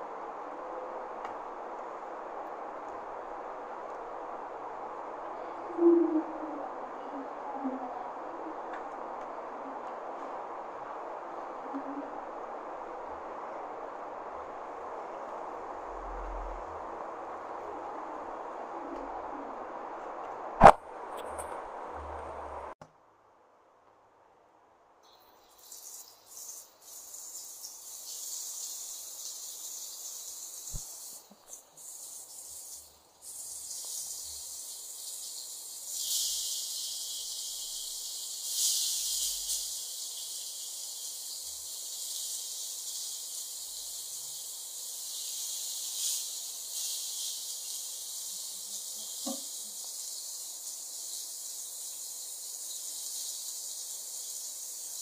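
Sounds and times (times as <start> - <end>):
fish sizzling in oil: 25.0 - 55.0.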